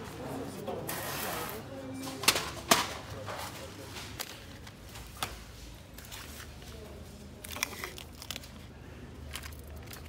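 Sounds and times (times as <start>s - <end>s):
crinkly rustling: 5.8s - 10.0s.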